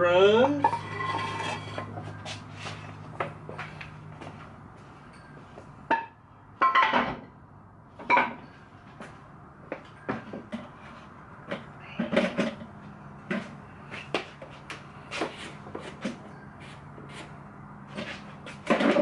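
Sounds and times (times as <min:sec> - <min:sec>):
wooden boards clattering: 0:18.6 - 0:19.0.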